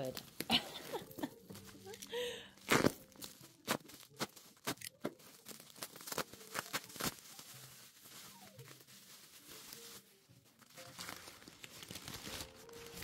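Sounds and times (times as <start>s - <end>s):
plastic wrap crinkling: 0.0s - 13.0s.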